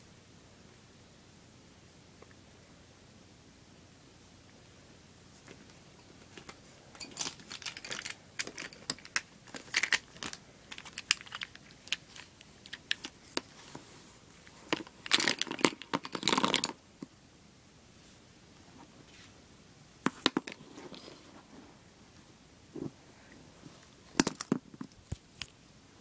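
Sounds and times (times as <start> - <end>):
plastic markers clicking and clattering: 6.3 - 13.6, 14.7 - 16.8.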